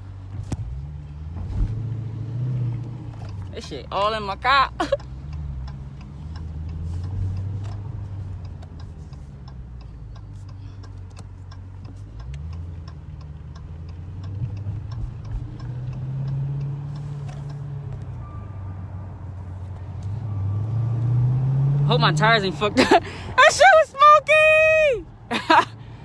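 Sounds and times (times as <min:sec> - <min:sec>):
car engine running: 0:00.0 - 0:26.0
indicator relay ticking: 0:04.8 - 0:18.4.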